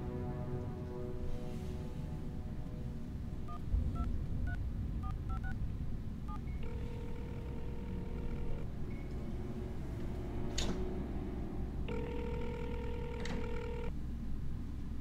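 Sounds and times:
low room hum: 0.0 - 15.0
phone ringing tone: 6.6 - 9.0, 11.9 - 13.9
phone keypad beeps: 11.9 - 13.9.

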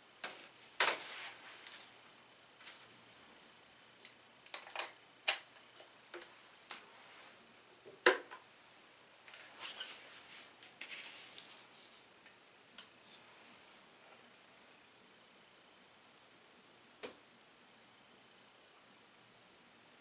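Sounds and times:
scraping and rustling of leads: 0.3 - 2.0, 9.3 - 12.1.

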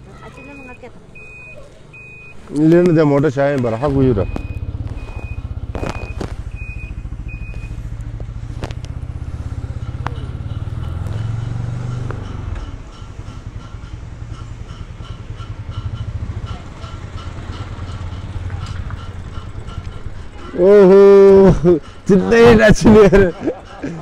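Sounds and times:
short electronic beep: 0.4 - 2.4, 3.7 - 7.7
small motorcycle engine running: 3.8 - 21.5.

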